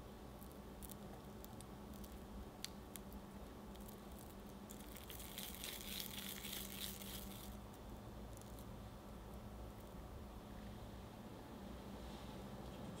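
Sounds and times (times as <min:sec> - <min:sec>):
paste rolled between palms: 0:03.0 - 0:07.6.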